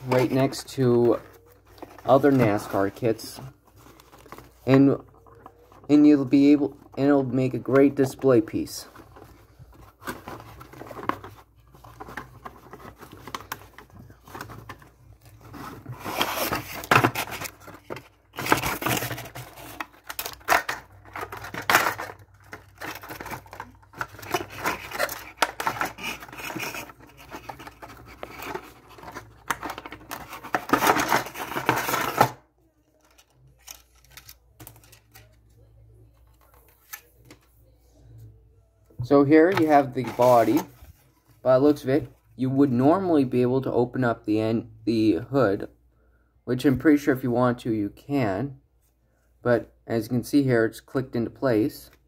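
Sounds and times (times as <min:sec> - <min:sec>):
plastic and cardboard packaging crinkling: 0:00.0 - 0:37.3.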